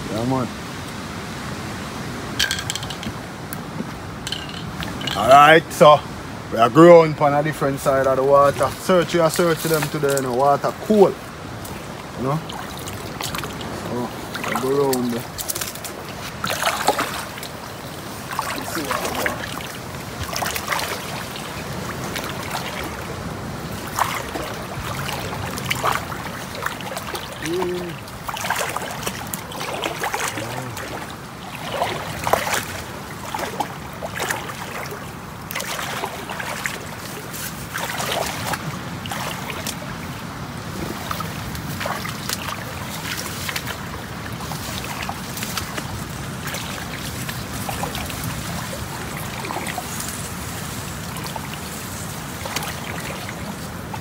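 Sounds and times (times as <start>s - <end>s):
flowing water rushing: 0.0s - 54.0s
river water splashing: 0.0s - 54.0s
water dripping: 4.2s - 5.6s.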